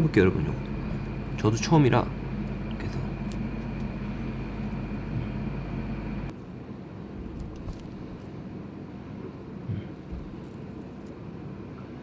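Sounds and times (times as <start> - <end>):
faint high whine: 0.0 - 7.1
machinery hum: 0.0 - 12.0.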